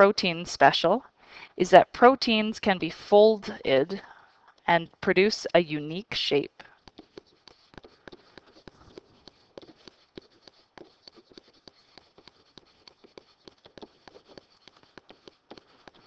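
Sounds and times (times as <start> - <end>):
stylus tapping on writing surface: 6.8 - 16.0.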